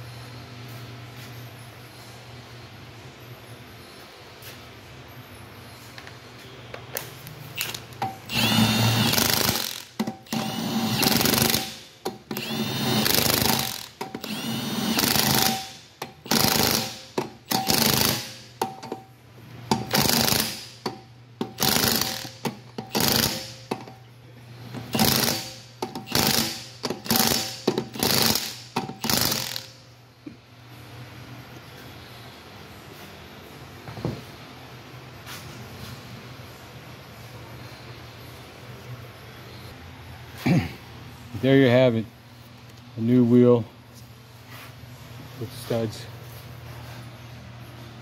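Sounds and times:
impact wrench bursts: 0:07.6 - 0:19.0, 0:19.7 - 0:23.9, 0:24.7 - 0:29.8.

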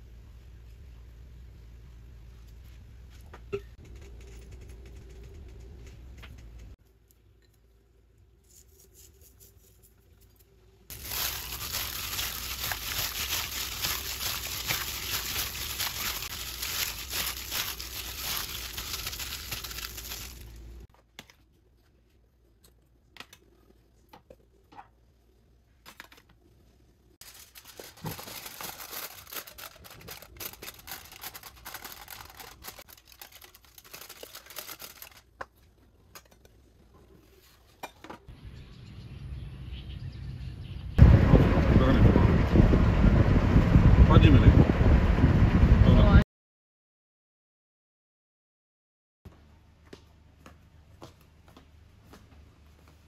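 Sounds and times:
aluminium foil crinkling: 0:08.5 - 0:20.9, 0:27.2 - 0:35.4
chicken mixed by hand crackling: 0:10.9 - 0:20.8, 0:27.2 - 0:35.3.

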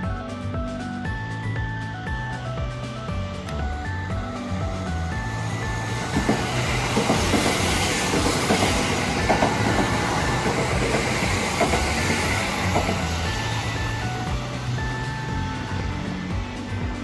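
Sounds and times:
train rushing past: 0:00.4 - 0:17.0
wheels clacking over rail joints: 0:04.7 - 0:17.0.

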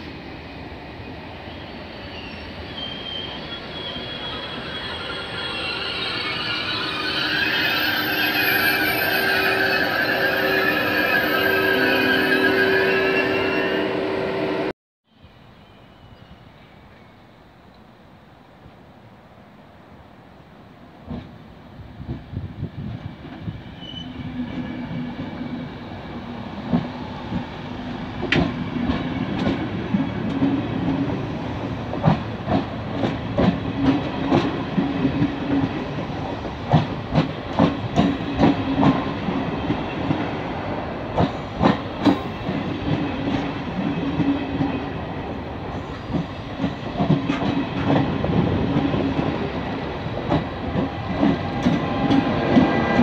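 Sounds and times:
train rumble: 0:20.6 - 0:53.0
train wheels clacking: 0:31.9 - 0:40.3, 0:41.1 - 0:44.9, 0:45.7 - 0:49.4, 0:50.2 - 0:53.0.

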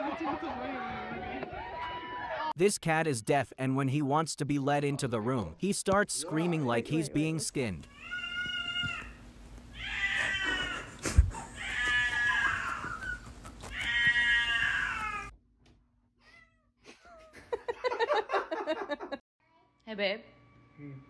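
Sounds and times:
cat yowling: 0:08.0 - 0:09.2, 0:09.8 - 0:10.9, 0:11.5 - 0:15.3.

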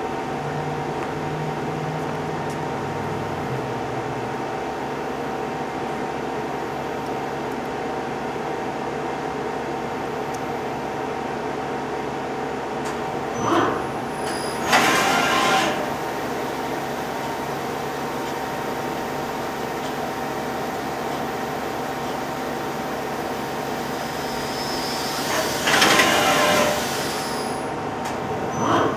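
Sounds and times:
tool turret moving: 0:14.6 - 0:15.9, 0:25.3 - 0:26.8.

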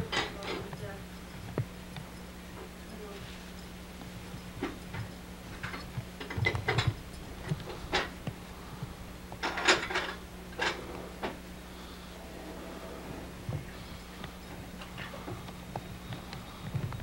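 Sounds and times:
steady low hum: 0:00.0 - 0:17.0
clicks knocks and clattering: 0:04.6 - 0:08.4, 0:09.4 - 0:11.4.

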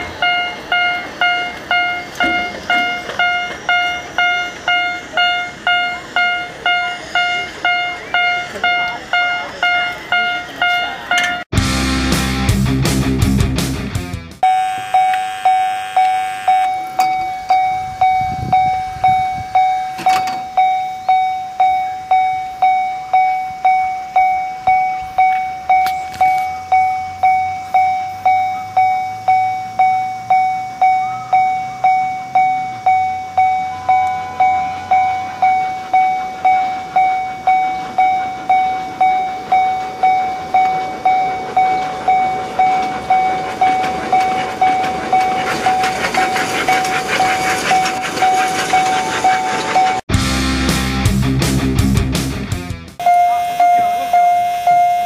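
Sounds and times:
miniature train rumbling: 0:00.0 - 0:11.4, 0:16.4 - 0:50.1
crossing warning bell ringing: 0:00.0 - 0:11.5, 0:14.4 - 0:50.0, 0:53.0 - 0:55.0.

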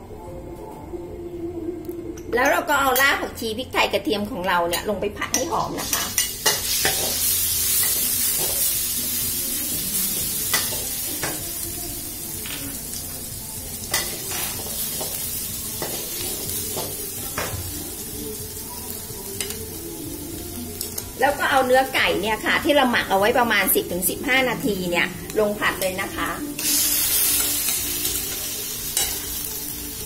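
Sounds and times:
paste sizzling in hot oil: 0:05.8 - 0:11.8, 0:24.0 - 0:30.0.

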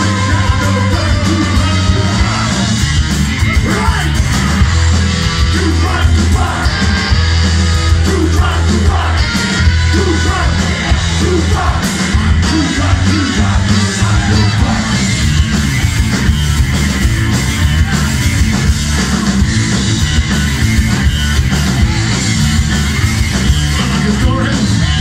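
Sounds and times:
singer yelling vocals: 0:00.0 - 0:02.8, 0:03.5 - 0:15.0, 0:23.7 - 0:25.0
drums: 0:00.0 - 0:25.0
electric guitar: 0:00.0 - 0:25.0.

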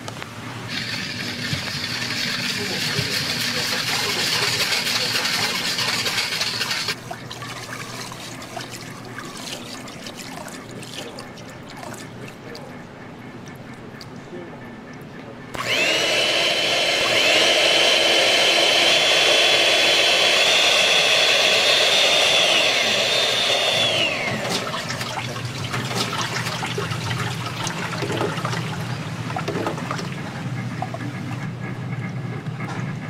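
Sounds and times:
electric hand mixer whine: 0:00.7 - 0:07.0, 0:15.6 - 0:25.0
batter sloshing and pouring: 0:00.8 - 0:12.7.

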